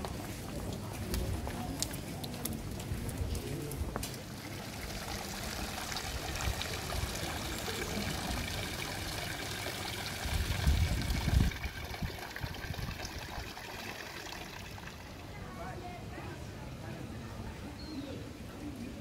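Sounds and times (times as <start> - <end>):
fountain water trickling into basin: 0.0 - 15.7.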